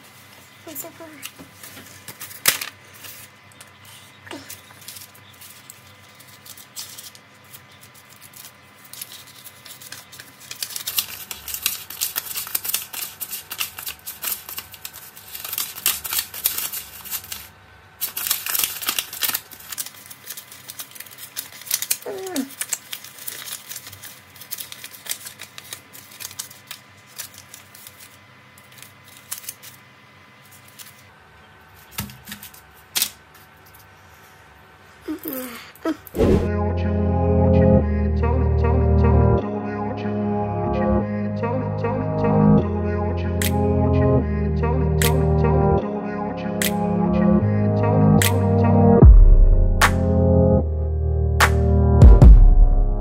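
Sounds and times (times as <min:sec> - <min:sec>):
banknotes crackling and rustling: 0:00.0 - 0:35.5.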